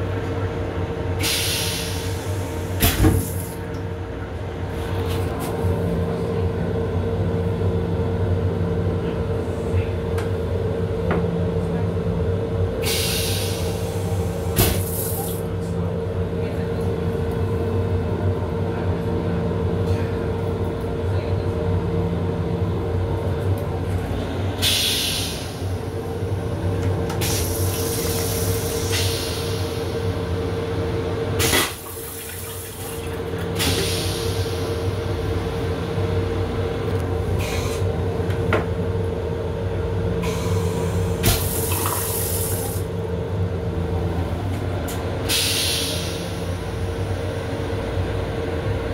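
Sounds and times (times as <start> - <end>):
railcar hum: 0.0 - 48.9
toilet flushing hiss: 27.2 - 29.9, 31.4 - 34.8, 40.2 - 42.8.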